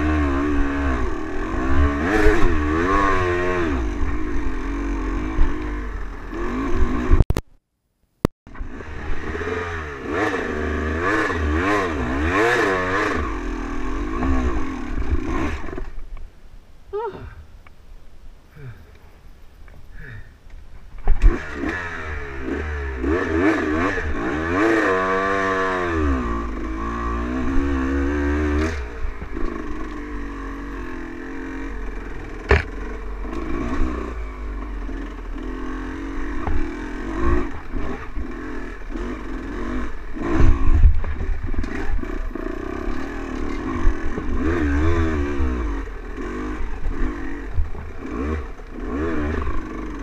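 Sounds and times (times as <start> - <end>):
dirt bike engine revving: 0.0 - 7.2, 8.5 - 16.0, 21.1 - 50.0
rattling over bumps: 31.8 - 34.0.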